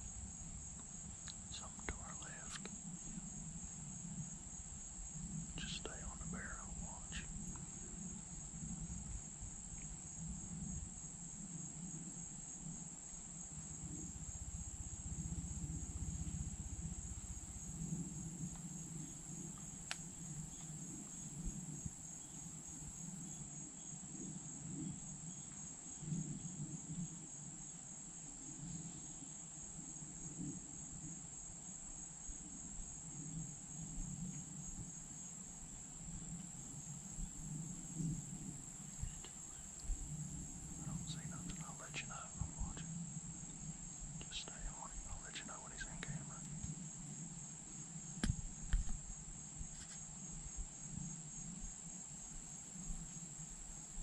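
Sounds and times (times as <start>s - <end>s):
faint low rumble: 0.0s - 11.1s, 13.0s - 23.3s, 33.8s - 46.8s
insects chirping chorus: 0.0s - 54.0s.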